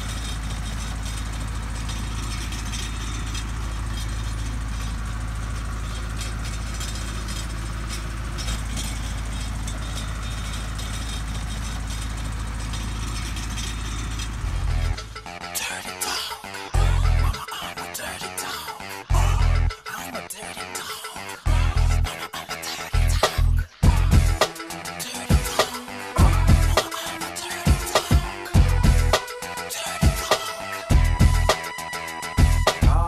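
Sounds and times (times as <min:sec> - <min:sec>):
constant crackling noise: 0:00.0 - 0:15.4
low rumble: 0:12.2 - 0:15.2, 0:19.1 - 0:19.7, 0:23.0 - 0:24.4.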